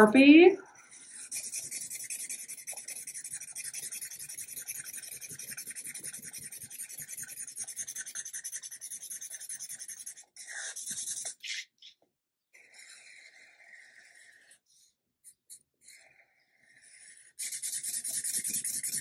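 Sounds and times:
marker scratching on paper: 0.8 - 11.7, 17.4 - 19.0.

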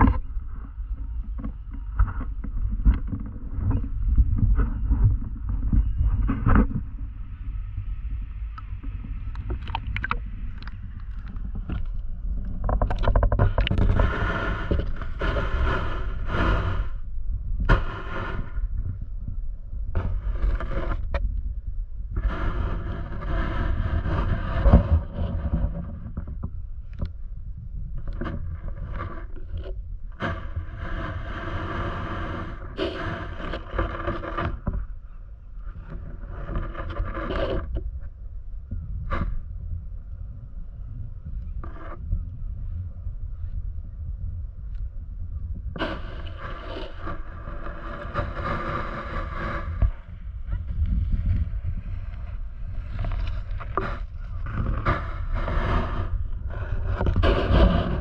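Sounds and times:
sharp clicks and scrapes: 0.0 - 7.0, 8.5 - 17.0, 19.9 - 21.5, 22.1 - 27.2, 27.8 - 35.0, 35.6 - 38.1, 45.6 - 58.0
muffled underwater rumble: 0.0 - 58.0
water rushing and sloshing: 9.3 - 11.2.

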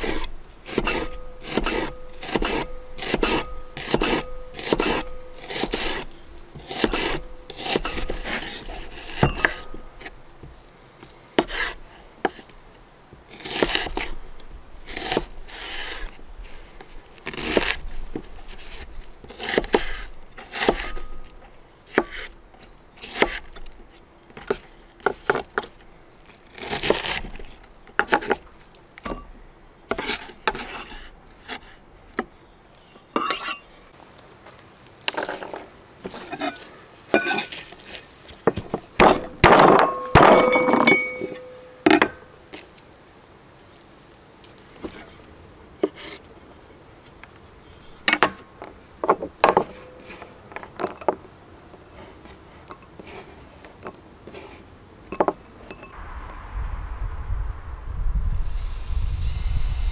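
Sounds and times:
knife slicing onion on board: 0.0 - 9.8.

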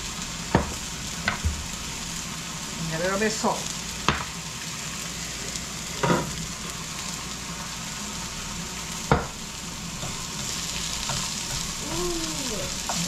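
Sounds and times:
steaks and onions sizzling in a pan: 0.0 - 13.0
knocks on the pan: 9.1 - 9.4.

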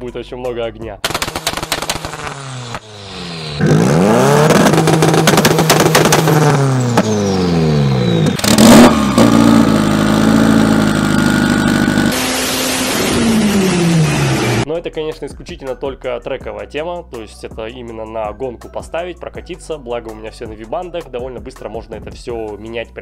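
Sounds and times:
exhaust pops and crackles: 1.0 - 2.8, 4.4 - 7.1, 8.2 - 12.2
car engine revving: 1.1 - 14.7.

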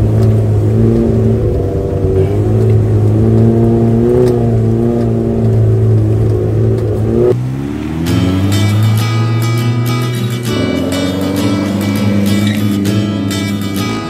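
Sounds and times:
car engine under load: 0.0 - 14.0.

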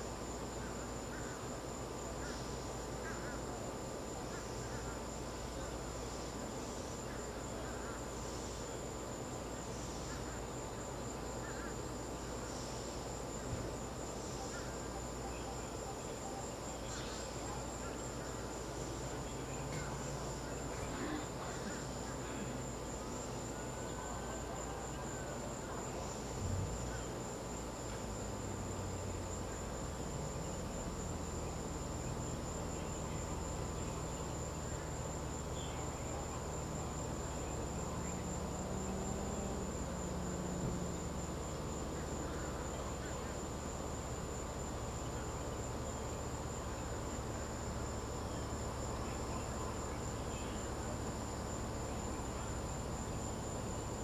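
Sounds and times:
crickets chirping: 0.0 - 54.0.

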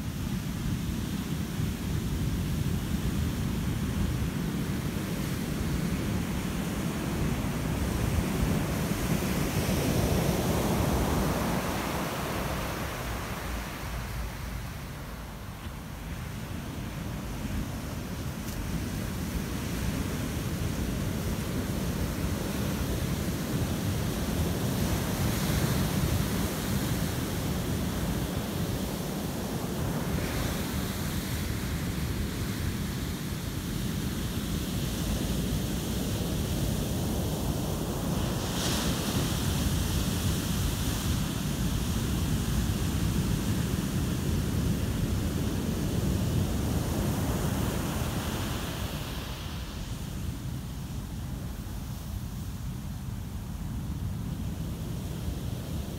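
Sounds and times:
ocean surf crashing: 5.3 - 33.5, 44.2 - 50.6.

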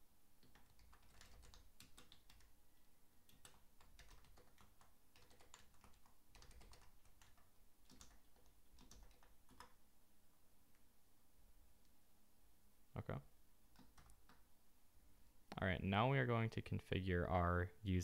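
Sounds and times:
typing on computer keyboard: 0.4 - 2.5, 3.3 - 9.8, 13.7 - 14.4.

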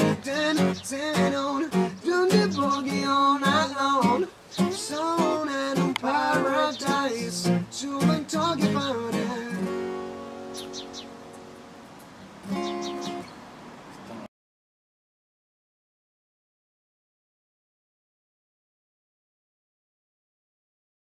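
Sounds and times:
young man singing: 0.0 - 10.4
acoustic guitars strumming: 0.0 - 13.4.

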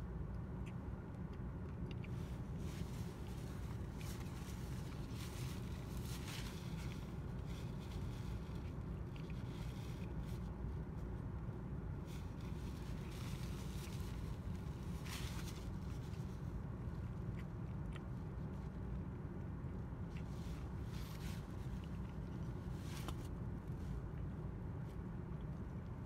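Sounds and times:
low rumble inside car: 0.0 - 26.0
chewing and mouth sounds: 0.6 - 5.8, 6.6 - 10.6, 15.9 - 26.0.

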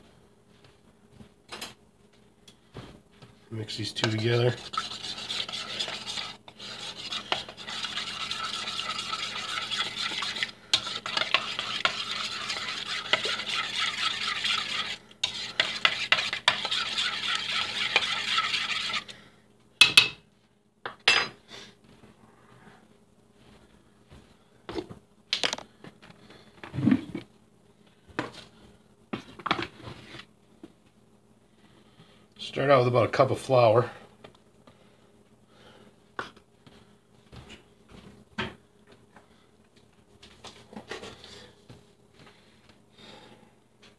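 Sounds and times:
utensil stirring in bowl: 3.6 - 19.2.

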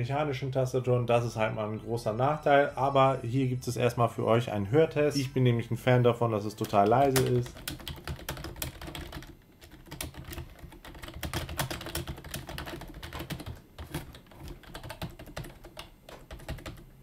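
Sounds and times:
fast typing on keyboard: 6.6 - 17.0.

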